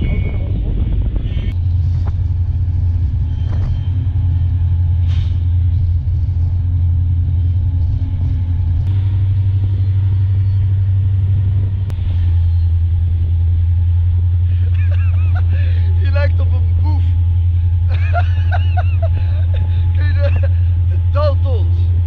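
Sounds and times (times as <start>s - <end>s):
train rumbling: 0.0s - 22.0s.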